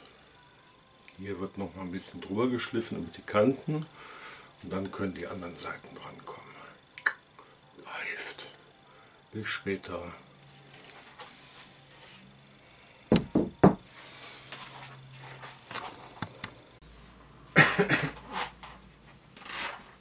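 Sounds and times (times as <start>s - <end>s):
wooden cabinet knocking on bench: 13.1s - 13.8s.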